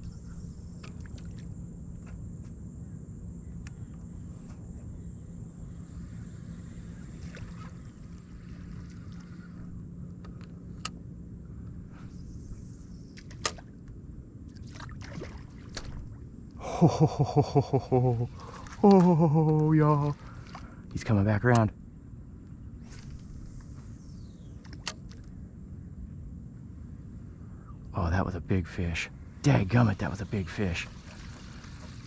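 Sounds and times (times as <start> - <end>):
water sloshing: 14.5 - 16.3, 18.1 - 21.1, 30.8 - 32.0.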